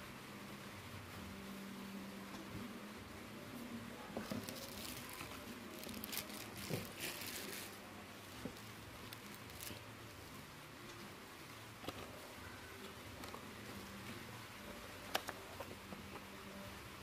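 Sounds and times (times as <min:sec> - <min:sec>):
plastic packaging crinkling: 0:04.2 - 0:09.9.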